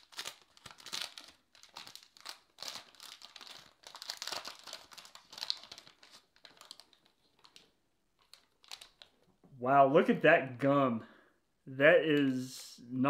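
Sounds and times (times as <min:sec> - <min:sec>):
wax paper wrapper crinkling: 0:00.0 - 0:09.4.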